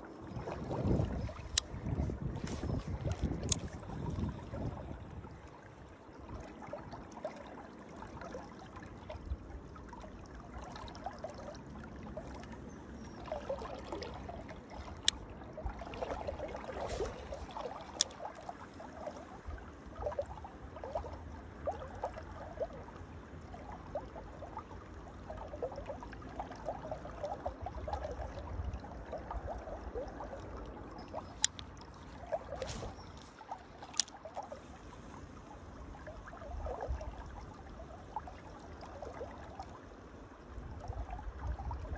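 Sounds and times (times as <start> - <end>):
shallow river water gurgling: 0.0 - 41.9.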